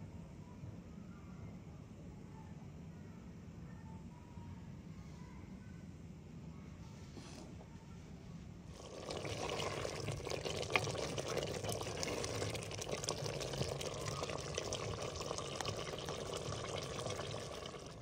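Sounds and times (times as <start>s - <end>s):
curry bubbling and popping: 8.7s - 18.0s.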